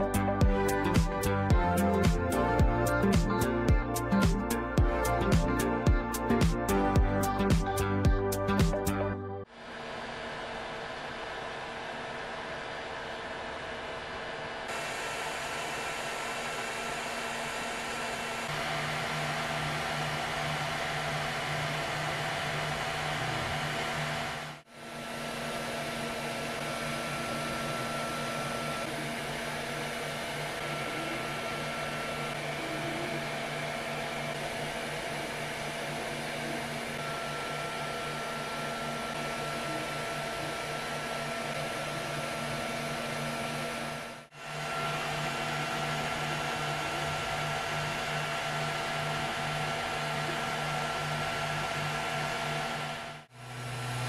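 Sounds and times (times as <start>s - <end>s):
printer cooling fans whirring: 9.5s - 54.0s.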